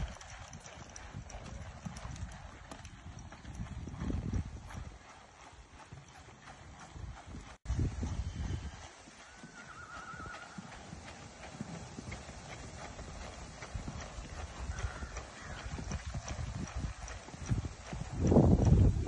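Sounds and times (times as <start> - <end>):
hoofbeats on sand: 0.0 - 19.0
faint wavering whistle: 9.3 - 10.6.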